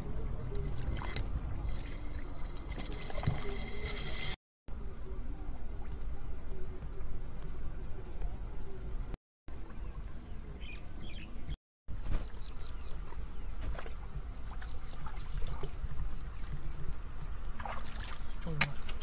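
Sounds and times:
insects trilling: 4.7 - 19.0.

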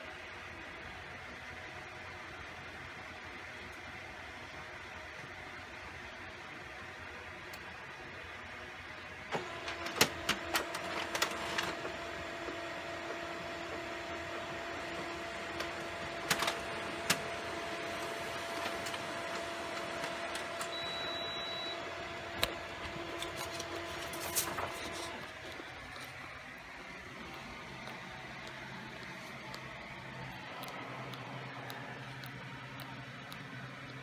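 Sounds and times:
laser printer printing: 9.0 - 34.0.

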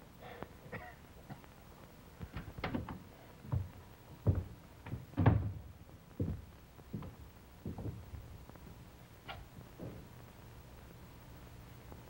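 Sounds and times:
footsteps on wooden floor: 2.7 - 5.6, 6.2 - 8.2.

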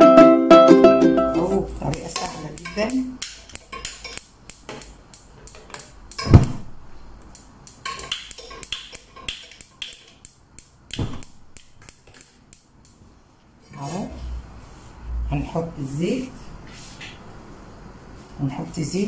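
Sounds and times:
loud thump: 6.2 - 6.8, 11.0 - 11.3.

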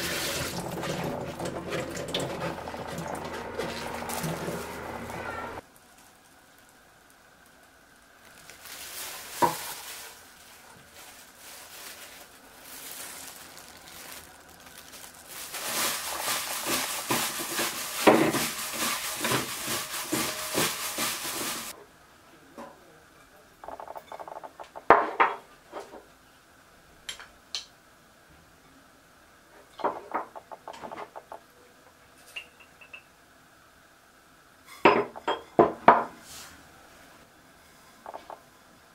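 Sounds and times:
dried fish strips rustling in bowl: 2.0 - 5.2, 8.0 - 21.7.

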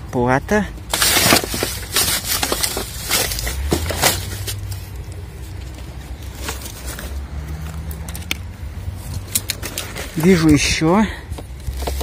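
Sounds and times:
plastic bags crinkling: 0.9 - 7.2.

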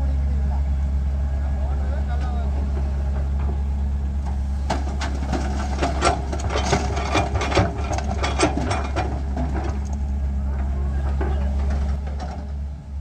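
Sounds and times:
diesel engines idling: 0.0 - 13.0
earth and stones clattering into metal trailer: 4.6 - 10.0.

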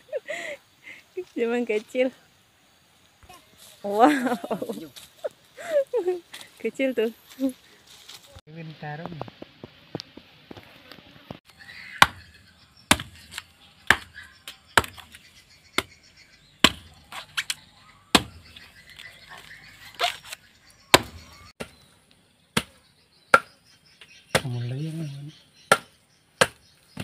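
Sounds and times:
blade chopping coconut husk: 12.0 - 15.2, 16.6 - 18.6, 19.4 - 21.9, 22.5 - 23.6, 24.3 - 24.6, 25.7 - 27.0.

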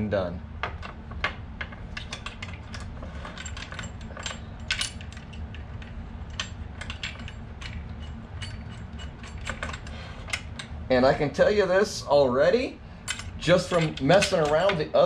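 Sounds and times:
steady low hum: 0.0 - 15.0
metallic clicks of bolts: 13.0 - 14.8.

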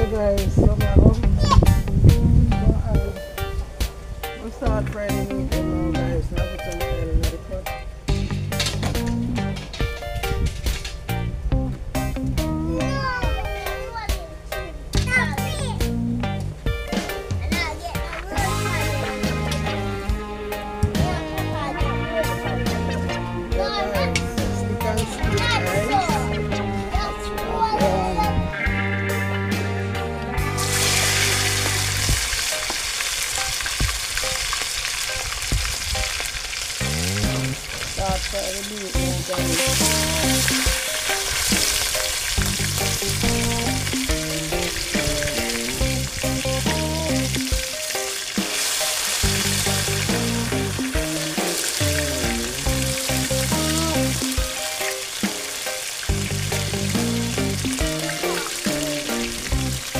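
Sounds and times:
background music: 0.0 - 59.9
meat sizzling in a pot: 30.6 - 59.9.

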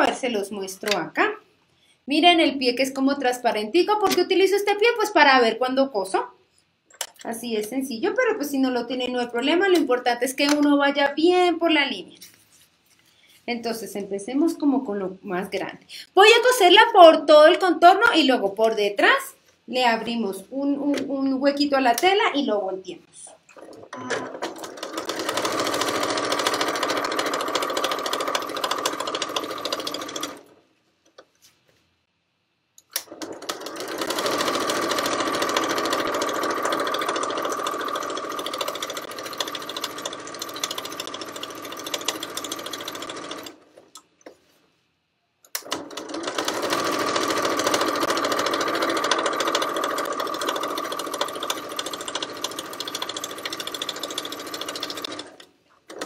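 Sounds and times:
sewing machine stitching: 23.5 - 30.6, 33.0 - 43.9, 45.6 - 56.0.

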